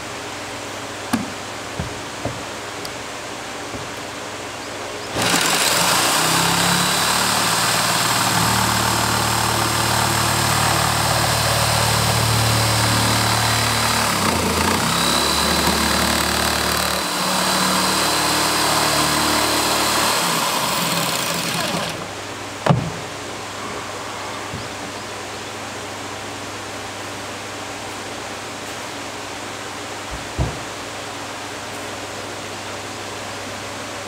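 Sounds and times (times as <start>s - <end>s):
electric jigsaw cutting plastic: 5.2s - 22.1s.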